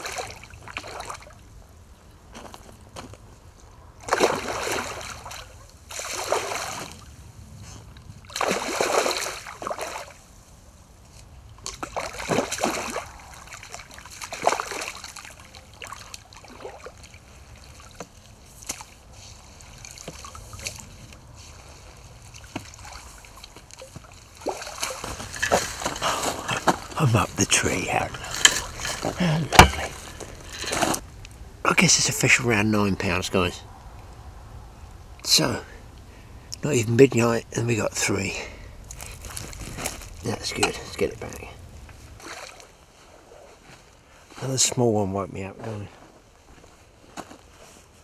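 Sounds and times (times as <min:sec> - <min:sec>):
fish splashing in water: 0:00.0 - 0:01.4, 0:04.0 - 0:07.1, 0:08.2 - 0:10.2, 0:11.6 - 0:19.0, 0:22.2 - 0:26.4.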